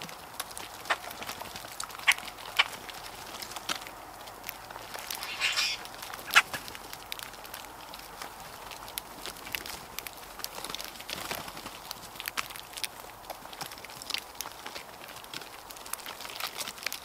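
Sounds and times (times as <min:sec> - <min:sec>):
sharp bird clicks: 0:01.9 - 0:02.9, 0:05.1 - 0:06.6
harsh scratchy bird call: 0:05.1 - 0:06.6.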